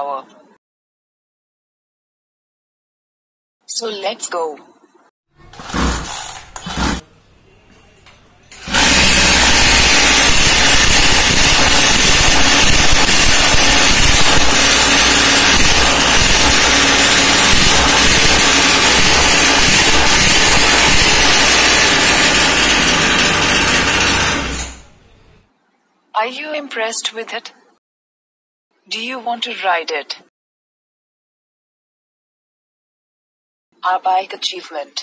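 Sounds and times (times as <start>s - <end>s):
small two-stroke engine running: 8.6s - 24.9s
pull-starter pulls: 8.6s - 25.0s.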